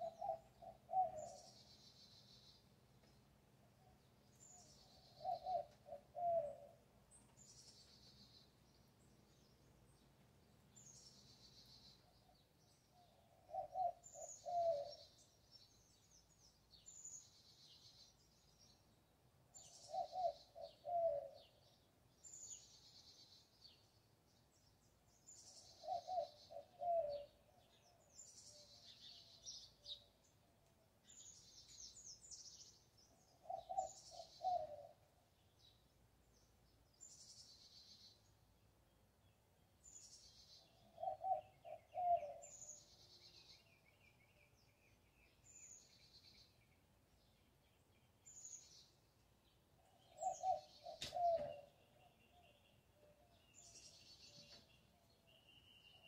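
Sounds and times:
bird high trilling song: 49.9 - 56.0.

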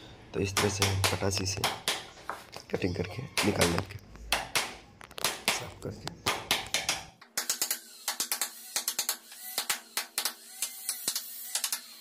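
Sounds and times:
hammer tapping wood chisel: 0.6 - 2.1.

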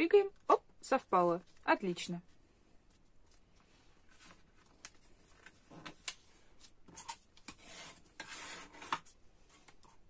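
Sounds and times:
ruler scraping paper: 7.0 - 9.1.

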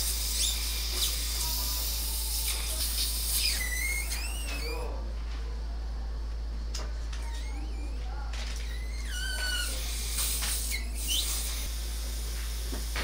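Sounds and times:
suction tip hissing and whistling: 0.0 - 4.8, 8.7 - 13.0
steady low hum: 0.0 - 13.0.

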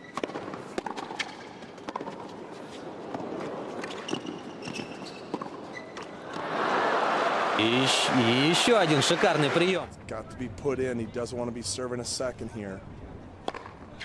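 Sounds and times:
racket hitting tennis ball: 0.1 - 2.3
sneakers squeaking on court: 3.8 - 6.2
crowd noise: 6.2 - 10.0.

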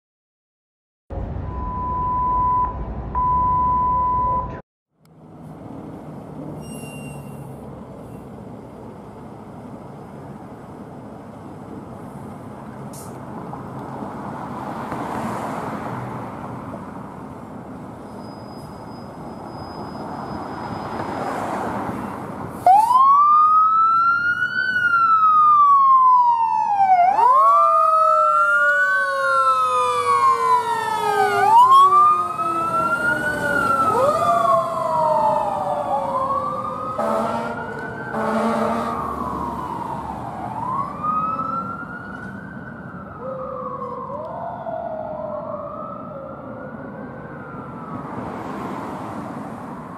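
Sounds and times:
lower siren tone sliding down: 1.1 - 4.6, 22.6 - 48.9
siren wailing: 22.6 - 48.6
horn blasts: 37.0 - 37.6, 38.2 - 39.0.

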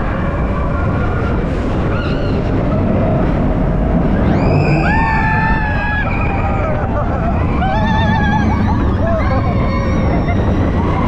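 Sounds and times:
roller coaster wheels rumbling: 0.0 - 11.0
riders screaming: 4.2 - 11.0.

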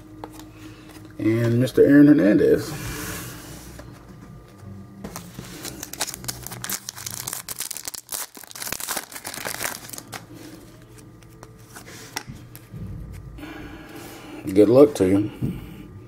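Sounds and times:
wrapper crinkling and tearing: 5.1 - 11.3.

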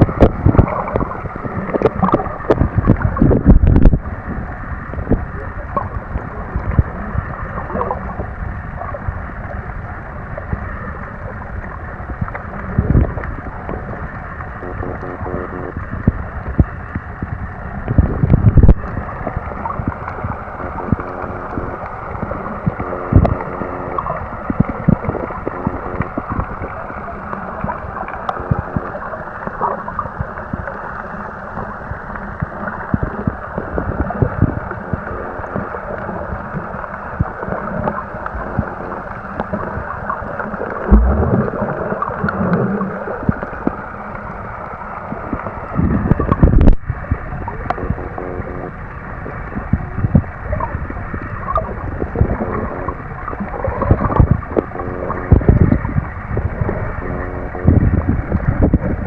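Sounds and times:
faint steady hum: 0.0 - 59.0
underwater watery rush: 0.0 - 59.0
low underwater knocks and thuds: 40.8 - 42.6.

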